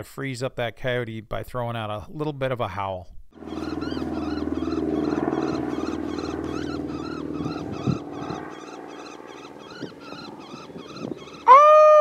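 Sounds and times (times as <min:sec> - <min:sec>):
raspy coyote howl call: 0:03.4 - 0:12.0.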